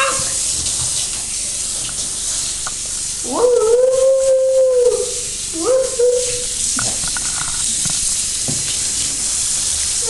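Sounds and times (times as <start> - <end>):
running bath water: 0.0 - 10.0
dog howling: 3.2 - 6.6.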